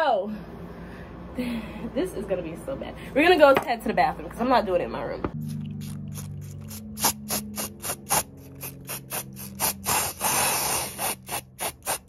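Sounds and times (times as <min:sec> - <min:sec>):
spray can hissing: 0:05.8 - 0:12.0.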